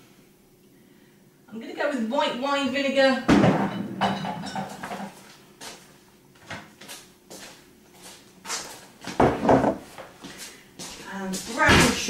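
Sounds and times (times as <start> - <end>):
bottles and jars knocking and clinking: 3.3 - 5.2.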